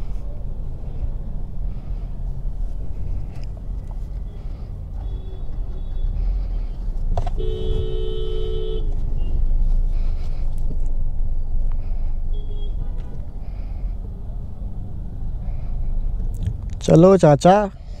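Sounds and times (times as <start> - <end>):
car road and engine rumble: 0.0 - 18.0
two-tone car horn: 5.0 - 6.2, 7.4 - 9.4.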